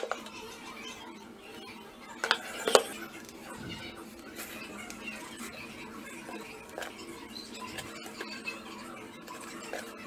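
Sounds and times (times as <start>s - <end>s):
steady low hum: 0.0s - 10.0s
pencil scratching on plastic: 2.2s - 10.0s.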